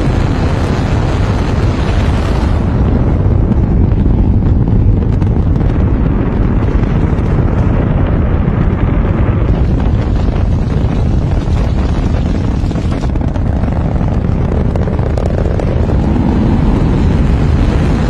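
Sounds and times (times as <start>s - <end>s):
rocket engines deep rumble: 0.0s - 18.0s.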